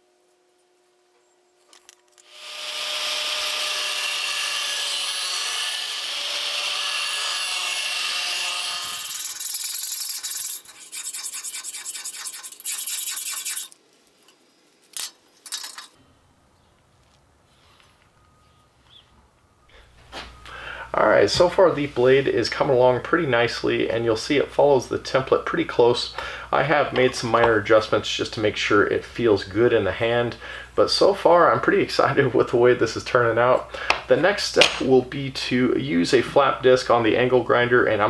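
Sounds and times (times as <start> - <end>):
tool rasping on steel: 2.2 - 13.8.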